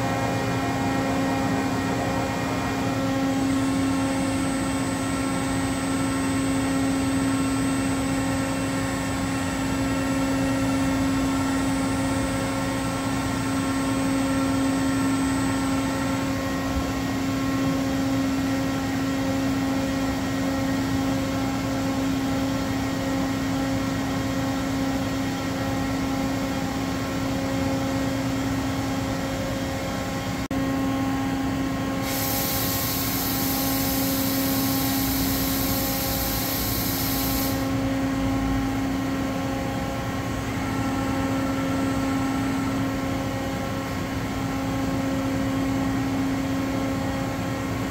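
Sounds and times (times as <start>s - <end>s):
milling machine hum: 30.6s - 39.1s
high hiss: 32.0s - 37.8s.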